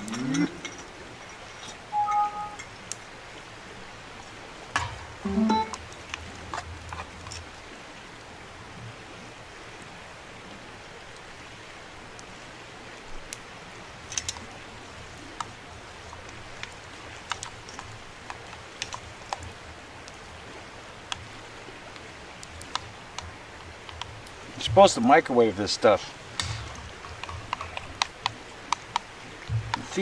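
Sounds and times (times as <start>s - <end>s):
pot clicks and pops: 4.7s - 7.5s, 15.3s - 20.2s, 21.9s - 25.1s, 26.3s - 30.0s
steady soft hiss: 10.5s - 30.0s.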